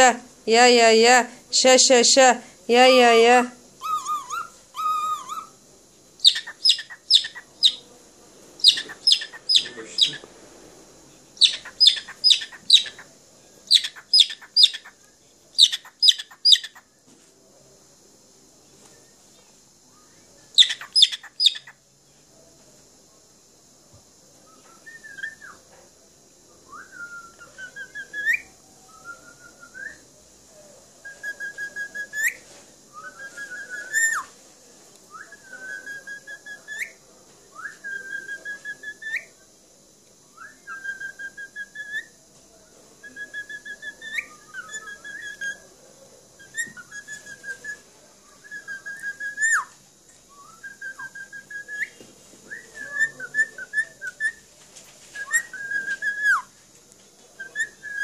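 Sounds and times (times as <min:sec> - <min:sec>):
cockatiel whistling: 0:03.8 - 0:05.5, 0:06.2 - 0:07.8, 0:08.6 - 0:10.2, 0:11.4 - 0:13.1, 0:13.7 - 0:14.9, 0:15.6 - 0:16.8, 0:20.6 - 0:21.7, 0:24.5 - 0:25.6, 0:26.8 - 0:30.0, 0:31.1 - 0:32.4, 0:33.0 - 0:34.3, 0:37.6 - 0:39.3, 0:40.4 - 0:42.1, 0:43.0 - 0:45.6, 0:46.4 - 0:47.8, 0:48.4 - 0:49.8, 0:50.4 - 0:51.9, 0:52.5 - 0:54.4, 0:55.2 - 0:56.5, 0:57.4 - 0:58.0.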